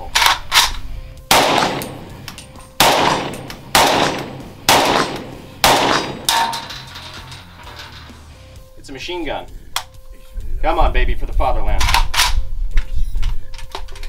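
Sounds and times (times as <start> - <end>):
rifle single shots: 1.3 - 6.7.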